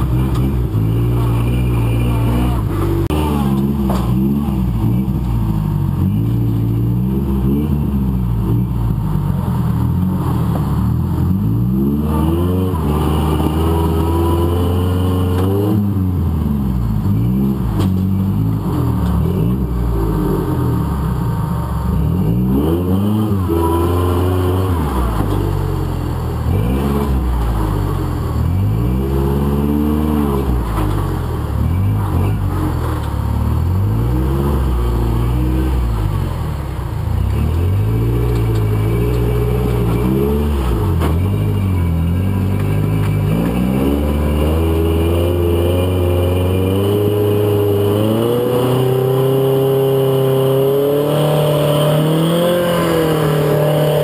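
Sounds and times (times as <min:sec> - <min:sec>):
buggy engine revving: 0:00.0 - 0:54.0.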